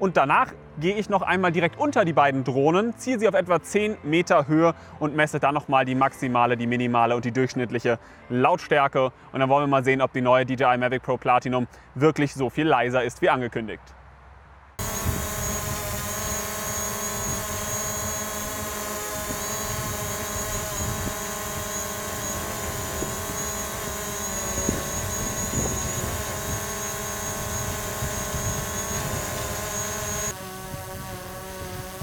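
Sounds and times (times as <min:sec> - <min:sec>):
drone propellers whining: 0:14.8 - 0:32.0.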